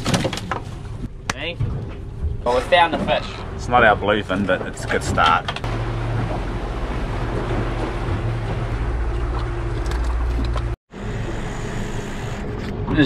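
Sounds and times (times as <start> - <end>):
boat engine hum: 0.6 - 13.0
rush of wake and wind: 2.6 - 10.8.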